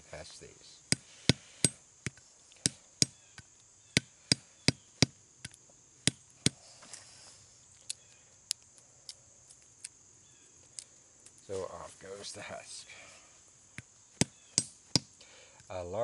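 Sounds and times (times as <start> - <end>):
tomahawk knocking nut on stone: 0.9 - 6.6, 13.7 - 15.1.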